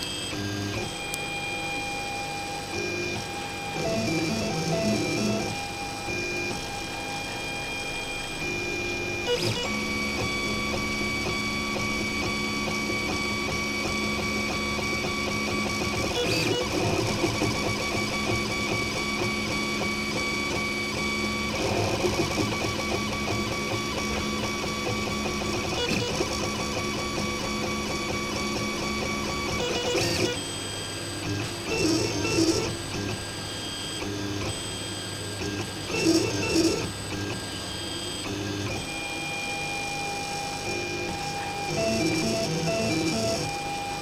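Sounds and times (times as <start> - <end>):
stepper motors whining: 0.3 - 30.6.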